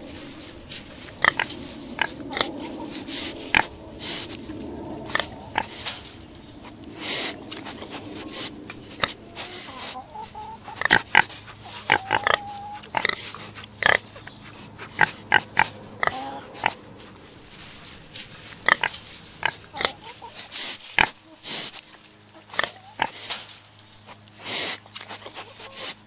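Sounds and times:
pigs grunting: 0.0 - 26.0
pig squealing: 1.2 - 4.4, 7.0 - 16.9, 18.6 - 21.6, 22.4 - 23.2.

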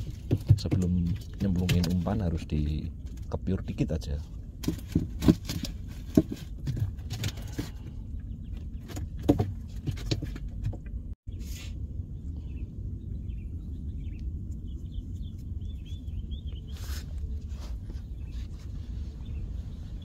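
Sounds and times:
handling knocks and rustles: 0.0 - 11.2
wind rumble on microphone: 0.0 - 20.0
faint bird chirps: 11.3 - 20.0.

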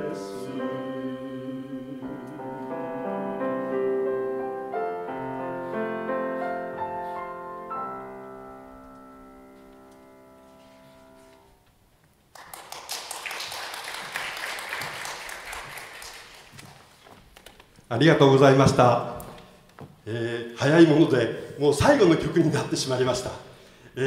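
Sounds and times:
grand piano playing: 0.0 - 11.6
audience applauding: 12.3 - 17.5.

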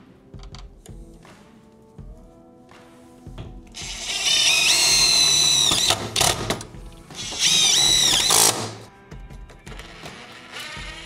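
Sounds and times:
cordless driver whining: 3.8 - 8.9.

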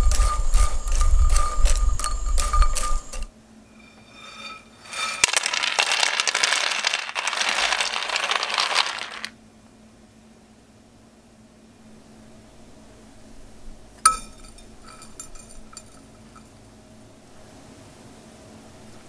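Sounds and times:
bread cubes pouring onto plate: 3.8 - 9.3
bread cubes rattling in frying pan: 4.0 - 9.3.

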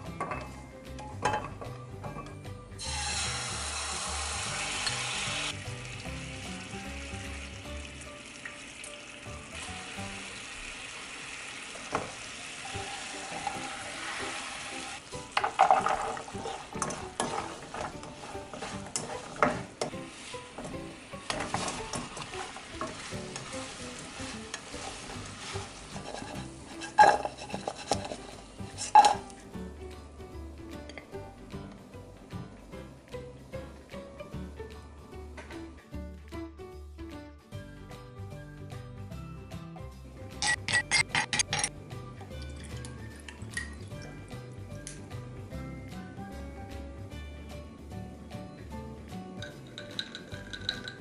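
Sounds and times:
syrup sizzling in frying pan: 2.8 - 29.3
wooden spatula scraping pan: 15.5 - 29.3.

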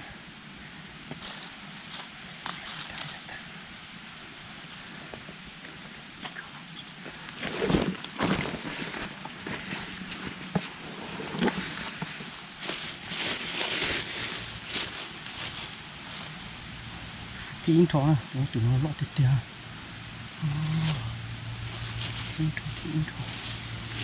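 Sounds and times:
rustling and crunching: 1.1 - 3.3, 7.0 - 16.6, 20.4 - 24.0.

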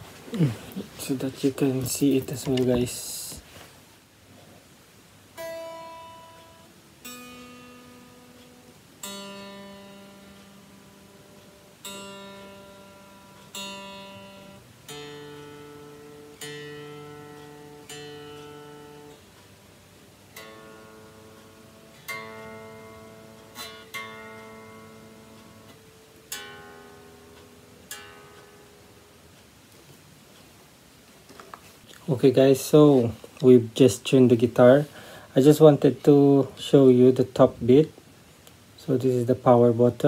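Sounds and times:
electric guitar strings plucked: 5.4 - 19.2.

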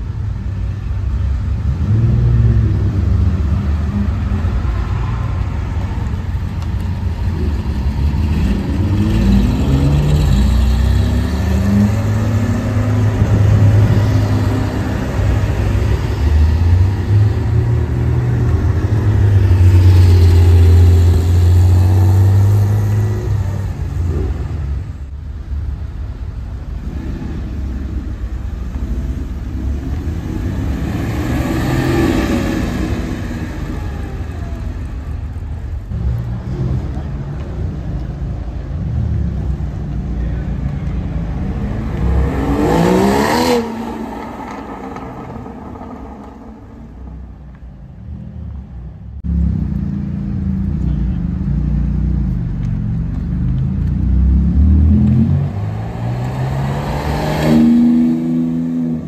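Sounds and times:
sports car engines revving: 0.0 - 59.0.

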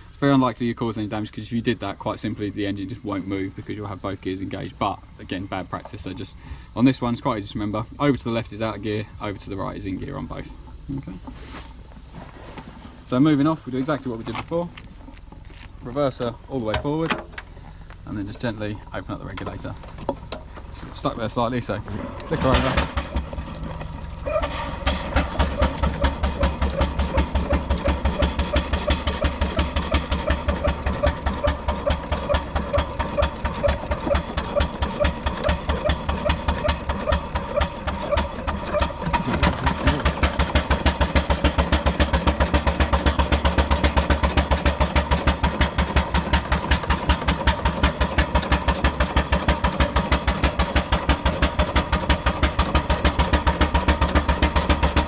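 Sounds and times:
steam engine exhaust beating: 19.6 - 55.0.

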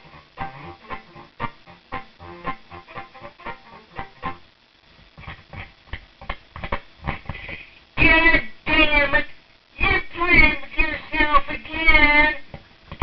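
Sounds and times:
quickly plucked guitar-like music: 0.0 - 4.4
loud voice: 8.0 - 12.5.

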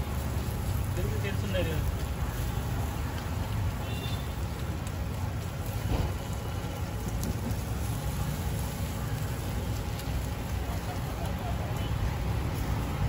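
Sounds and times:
batter sizzling on hot griddle: 0.0 - 13.0.

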